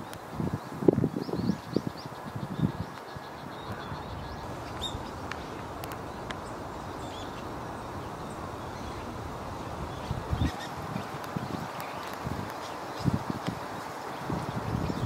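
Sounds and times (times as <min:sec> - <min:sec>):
woodland background noise: 0:00.0 - 0:15.0
faint bird chirps: 0:01.2 - 0:13.2.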